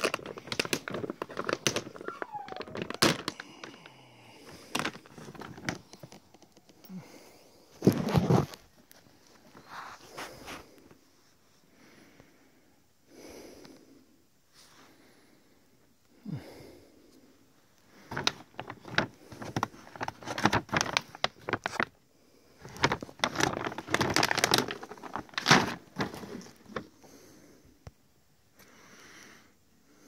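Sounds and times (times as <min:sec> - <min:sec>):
bag crinkling: 0:00.0 - 0:06.9, 0:18.0 - 0:22.0, 0:22.6 - 0:27.0
dry kibble rattling in bag: 0:00.0 - 0:06.9, 0:18.0 - 0:22.0, 0:22.6 - 0:26.9.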